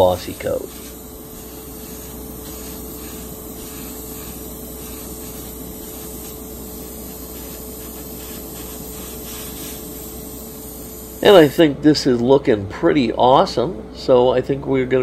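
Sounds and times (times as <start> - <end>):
airbrush spraying hiss: 0.0 - 11.7
low steady hum: 0.0 - 15.0.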